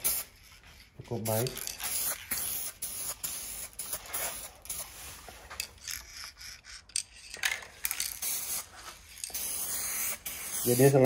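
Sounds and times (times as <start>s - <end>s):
aerosol spray can hissing: 0.0s - 0.3s, 1.8s - 5.4s, 8.2s - 11.0s.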